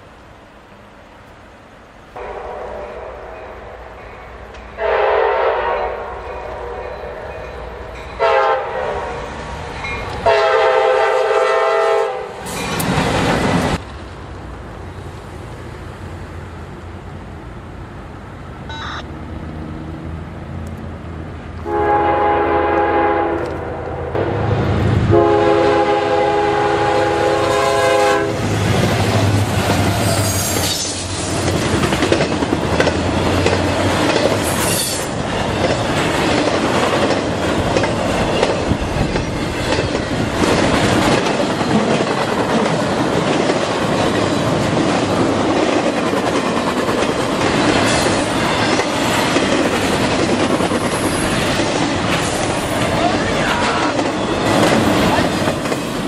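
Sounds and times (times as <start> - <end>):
train wheels rushing on rails: 2.1 - 56.0
train air horn blasts: 2.2 - 4.0, 4.8 - 7.3, 8.2 - 9.2, 10.2 - 12.4, 21.6 - 24.3, 25.1 - 28.5
high wheel squeals: 30.0 - 31.2, 34.4 - 35.2.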